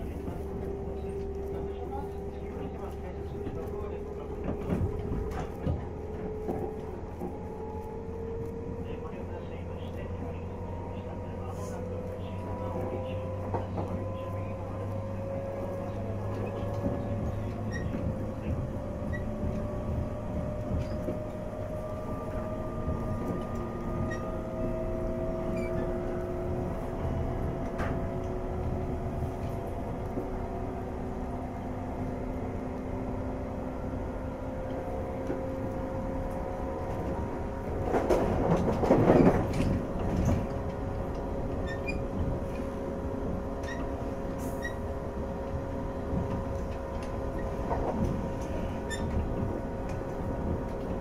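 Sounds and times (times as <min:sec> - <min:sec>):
train wheels rumbling on rail: 0:00.0 - 0:51.0
traction motor whine: 0:00.1 - 0:31.4.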